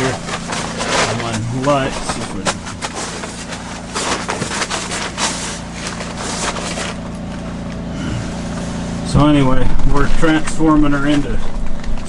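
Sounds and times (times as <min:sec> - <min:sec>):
rustling of plastic bags: 0:00.0 - 0:09.0
generator engine hum: 0:00.0 - 0:12.0.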